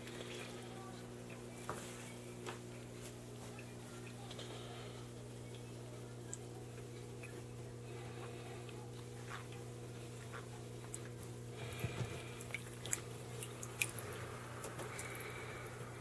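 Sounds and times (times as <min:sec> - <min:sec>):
steady low hum: 0:00.0 - 0:16.0
water dripping and splashing: 0:12.4 - 0:15.1.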